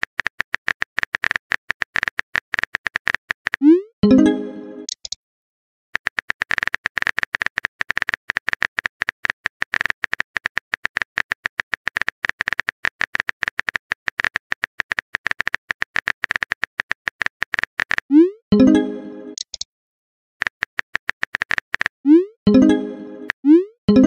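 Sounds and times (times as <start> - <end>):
phone keyboard typing clicks: 0.0 - 3.6, 4.8 - 5.2, 6.0 - 18.1, 20.4 - 21.9.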